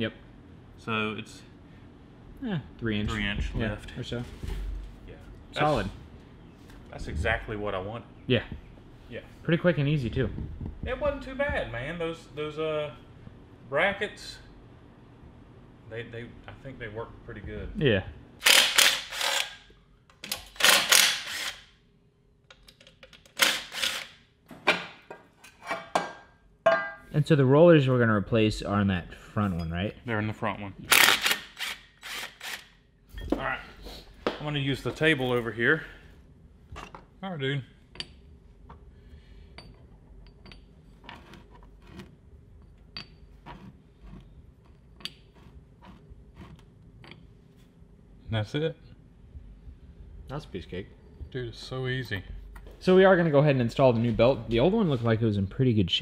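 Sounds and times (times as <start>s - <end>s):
metal parts clicking and clinking: 39.5s - 41.3s.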